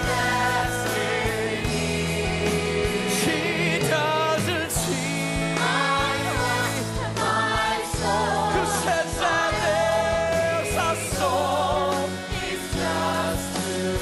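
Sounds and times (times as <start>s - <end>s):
backing voices singing: 0.0s - 14.0s
rock band playing: 0.0s - 14.0s.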